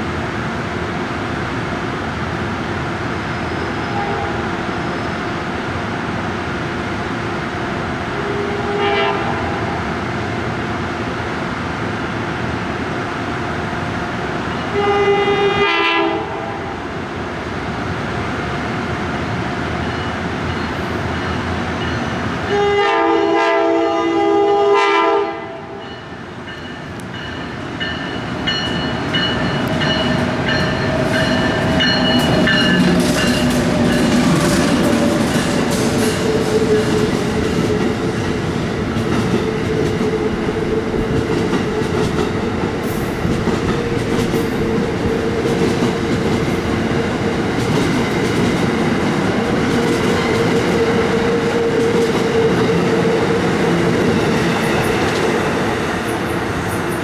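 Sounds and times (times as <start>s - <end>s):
train rumbling on rails: 0.0s - 57.0s
locomotive horn blasts: 3.8s - 4.6s, 8.2s - 9.8s, 14.7s - 16.7s, 22.5s - 25.8s.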